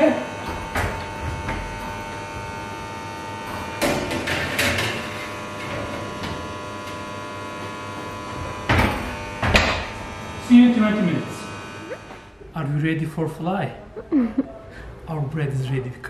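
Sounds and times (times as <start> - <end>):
oven electrical hum: 0.0 - 16.0.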